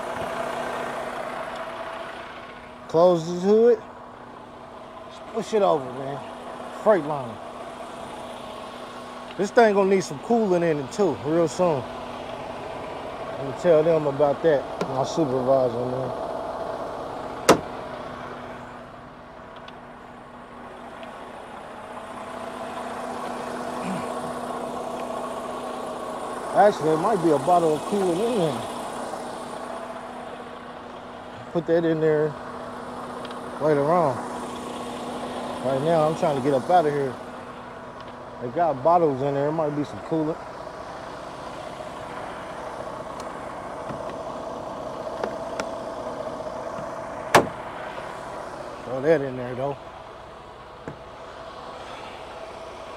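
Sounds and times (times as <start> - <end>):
diesel engine idling: 0.0 - 52.9
truck hood latching shut: 17.4 - 17.8, 46.8 - 47.6.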